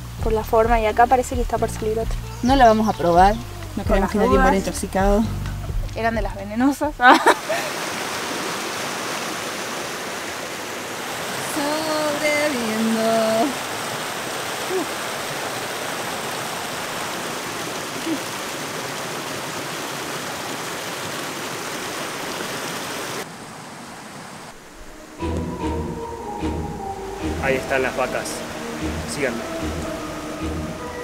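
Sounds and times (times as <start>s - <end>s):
river rushing over rocks: 7.3s - 24.8s.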